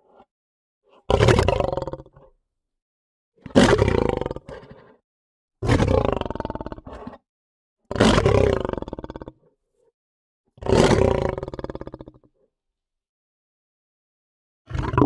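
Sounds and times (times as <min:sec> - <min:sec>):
lion roaring: 0:00.9 - 0:02.3, 0:03.4 - 0:05.0, 0:05.6 - 0:07.2, 0:07.9 - 0:09.3, 0:10.6 - 0:12.3, 0:14.7 - 0:15.0.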